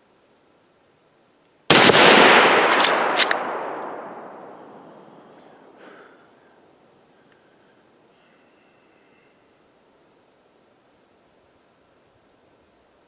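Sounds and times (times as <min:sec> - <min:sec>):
rifle shot echoing: 0:01.7 - 0:05.8
sharp clicks: 0:02.6 - 0:03.9.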